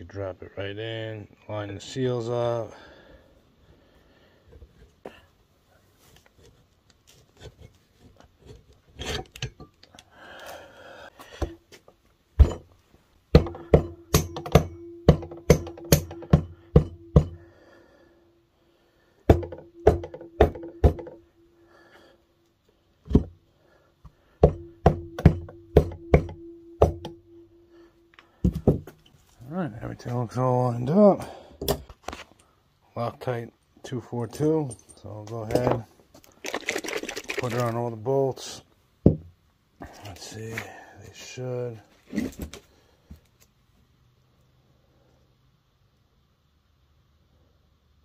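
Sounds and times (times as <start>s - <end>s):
rubber mallet knocking metal: 12.4s - 12.7s, 13.3s - 17.5s, 19.3s - 21.4s, 24.4s - 27.6s.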